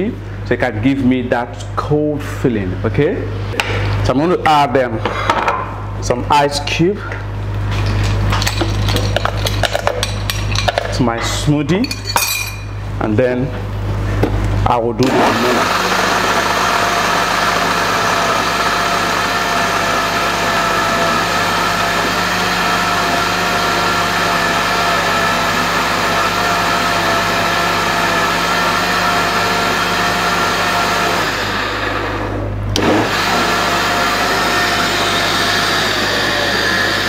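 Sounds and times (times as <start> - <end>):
blender motor whine: 15.0 - 37.0
blender click: 32.7 - 37.0.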